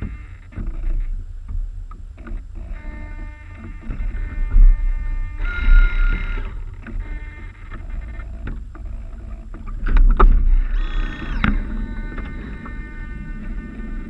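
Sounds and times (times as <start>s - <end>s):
steady low rumble: 0.0s - 14.0s
water splashing along hulls: 0.0s - 14.0s
brief high whine: 4.1s - 7.4s.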